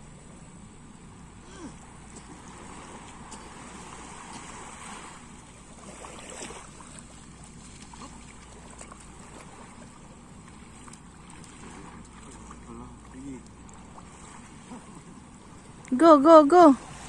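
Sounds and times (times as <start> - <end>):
seawater washing in shallows: 1.4 - 17.0.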